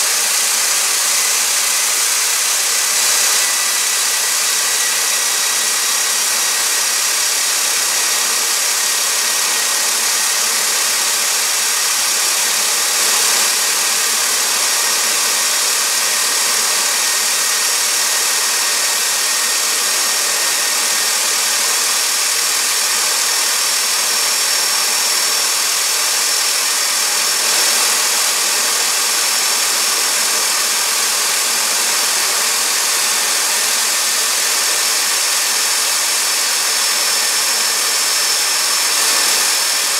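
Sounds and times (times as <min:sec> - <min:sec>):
high jet whine: 0:00.0 - 0:07.3
turbojet engine roaring: 0:00.0 - 0:12.1, 0:30.8 - 0:39.9.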